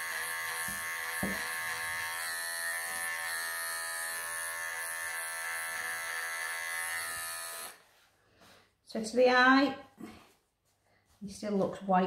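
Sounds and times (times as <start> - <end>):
pet clippers buzzing: 0.0 - 7.8.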